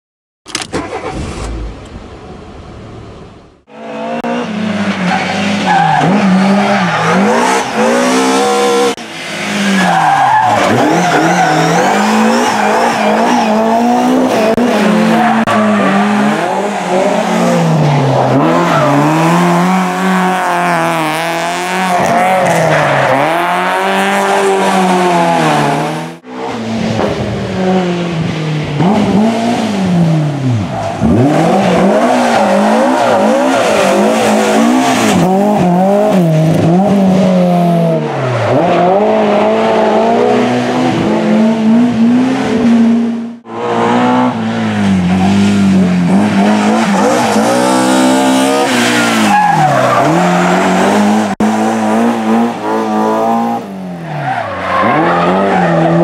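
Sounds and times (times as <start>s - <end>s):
rally car engines revving: 0.8s - 56.0s.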